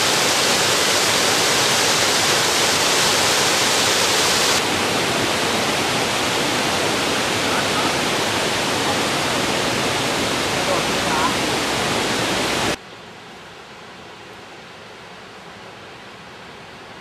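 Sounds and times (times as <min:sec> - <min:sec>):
waterfall rushing: 0:00.0 - 0:12.8.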